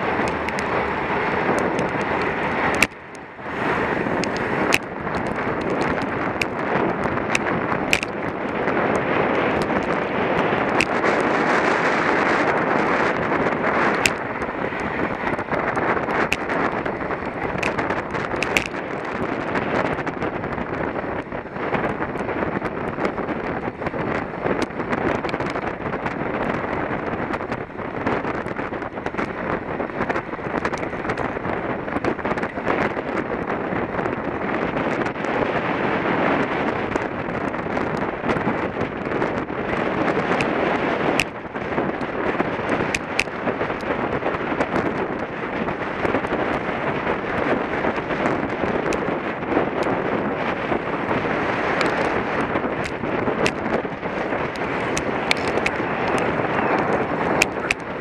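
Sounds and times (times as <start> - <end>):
wind buffeting microphone: 0.0 - 58.0
sharp clicks: 7.3 - 9.0, 14.0 - 14.9, 54.5 - 57.9.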